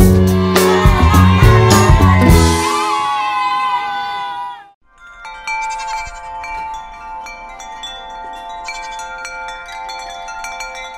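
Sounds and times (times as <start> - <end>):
background music: 0.0 - 3.2
tinkling chime jingle: 4.9 - 10.9.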